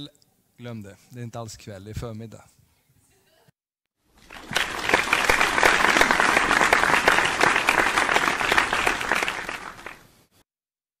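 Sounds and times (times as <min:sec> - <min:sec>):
applause: 0:04.2 - 0:10.1.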